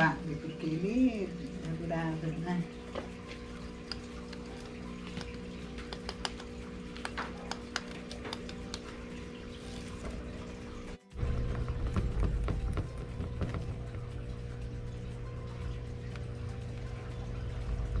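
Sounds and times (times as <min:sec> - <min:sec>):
rabbit gnawing dry grass: 0:03.1 - 0:10.8
low hum: 0:08.8 - 0:18.0.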